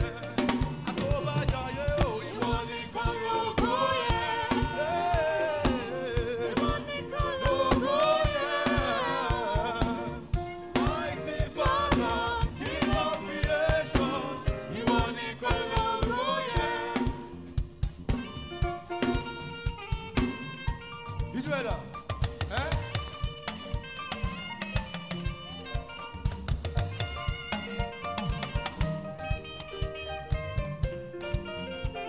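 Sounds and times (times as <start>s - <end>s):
gospel choir singing: 0.0s - 19.4s
band with drum beat: 0.0s - 32.0s.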